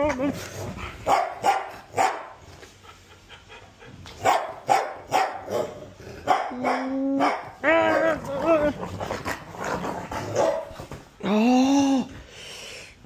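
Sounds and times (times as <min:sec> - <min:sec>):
small dog barking: 0:01.1 - 0:02.4, 0:04.2 - 0:08.1, 0:10.4 - 0:10.7.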